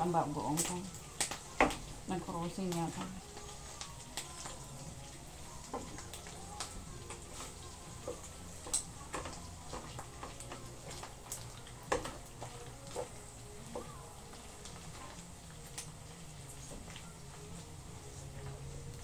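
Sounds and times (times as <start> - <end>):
faint sizzle: 0.0 - 19.0.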